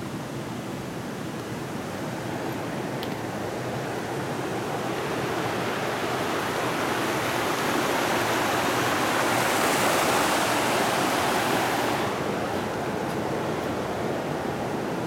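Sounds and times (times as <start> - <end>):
creek water rushing over rocks: 0.4 - 15.0.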